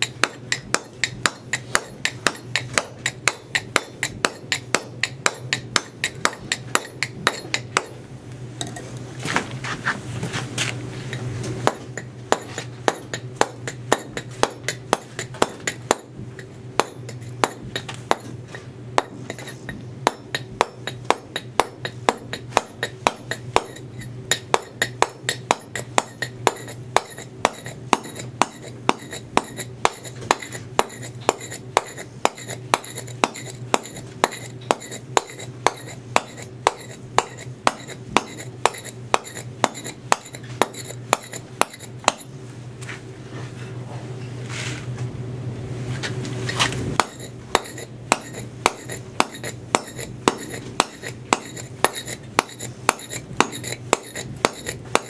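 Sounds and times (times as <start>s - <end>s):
mallet striking chisel on stone: 0.0s - 8.0s, 11.1s - 18.4s, 19.0s - 42.3s, 47.0s - 55.0s.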